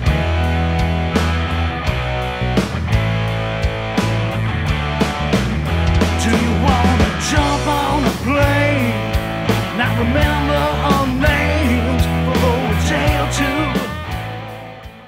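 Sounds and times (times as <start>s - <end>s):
rock band playing: 0.0s - 15.0s
lead guitar bending pitch: 0.1s - 10.6s.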